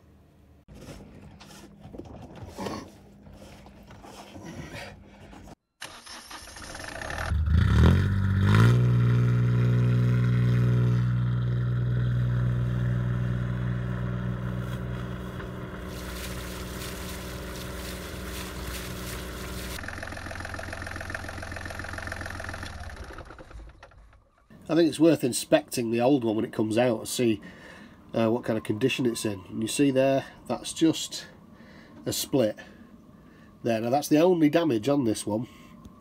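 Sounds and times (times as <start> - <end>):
diesel engine starting and idling: 5.8 - 9.9, 11.1 - 24.6.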